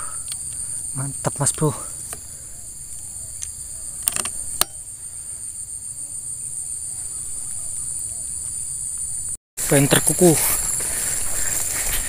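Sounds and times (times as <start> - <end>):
insect chorus buzzing: 0.0 - 12.0.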